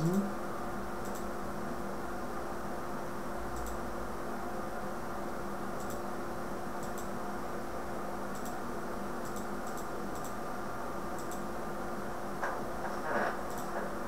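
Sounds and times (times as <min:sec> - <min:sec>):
recording hiss and low hum: 0:00.0 - 0:14.0
faint computer mouse clicks: 0:03.6 - 0:03.8, 0:09.2 - 0:10.4.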